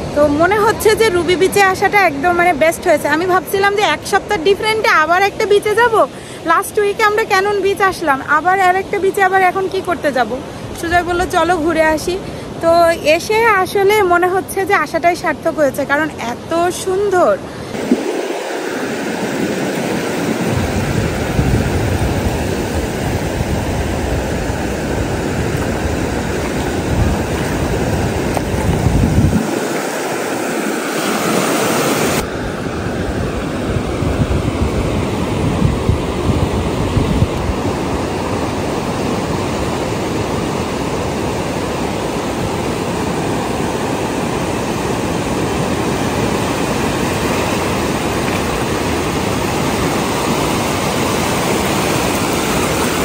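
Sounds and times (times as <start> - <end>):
ocean waves breaking on beach: 0.0 - 53.0
wind buffeting microphone: 17.7 - 53.0.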